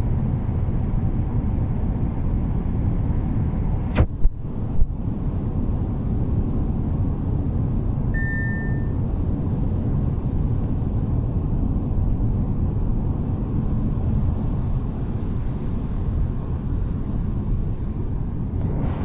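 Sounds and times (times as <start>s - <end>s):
road and engine noise in car cabin: 0.0s - 19.0s
short electronic beep: 8.2s - 9.0s.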